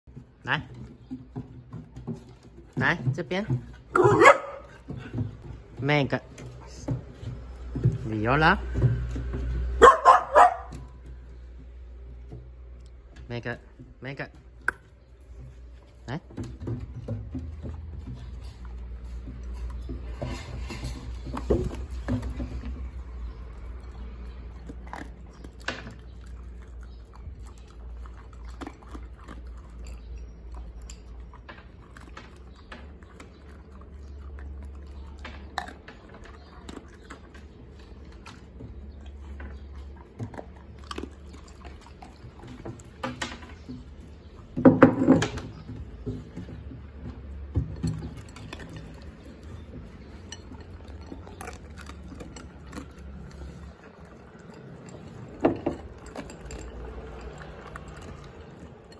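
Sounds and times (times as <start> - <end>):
dogs crunching dry kibble: 14.6 - 58.9
bowl clattering on wooden floor: 44.6 - 51.2.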